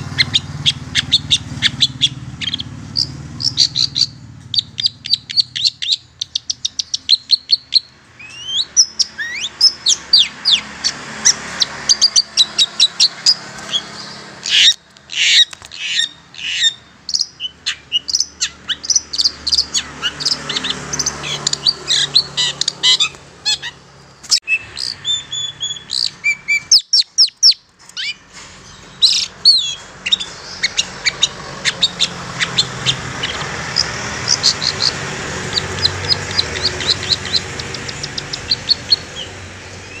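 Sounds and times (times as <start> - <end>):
whistled bird notes: 0.0 - 10.7, 24.4 - 40.0.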